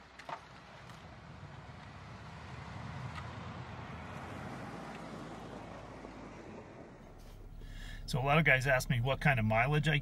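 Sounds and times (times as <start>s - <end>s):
vehicle driving through snow: 0.1s - 8.0s.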